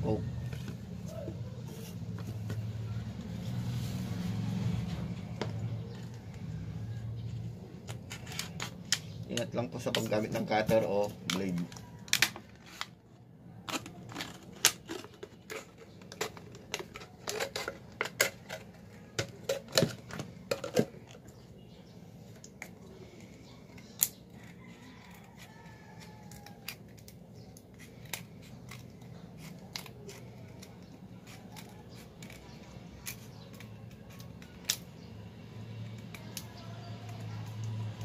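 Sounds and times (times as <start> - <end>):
scissors snipping plastic bottle: 26.1 - 35.1, 35.8 - 38.0.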